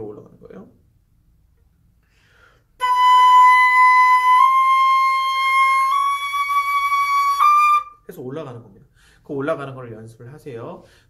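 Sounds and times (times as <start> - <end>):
flute playing long notes: 2.8 - 8.0.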